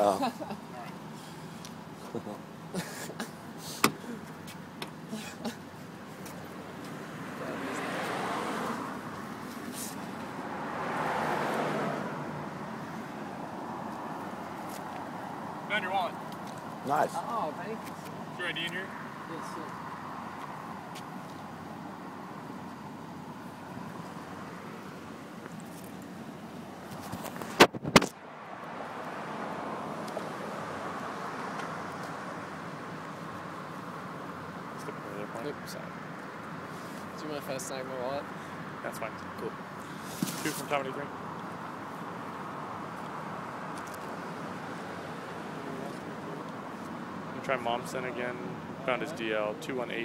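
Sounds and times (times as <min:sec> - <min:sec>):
car engine idling: 0:00.0 - 0:11.0
background traffic hum: 0:00.0 - 0:50.0
car passing: 0:00.0 - 0:50.0.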